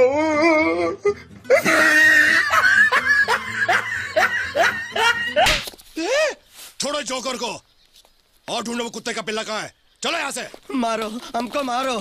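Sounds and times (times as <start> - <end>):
background music: 0.0 - 5.6
laughter in short bursts: 1.5 - 5.5.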